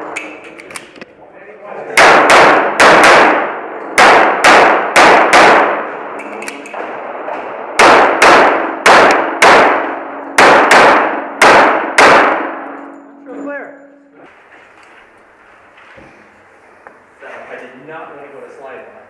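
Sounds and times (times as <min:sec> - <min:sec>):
pistol shots echoing indoors: 0:00.0 - 0:01.1, 0:01.8 - 0:13.1.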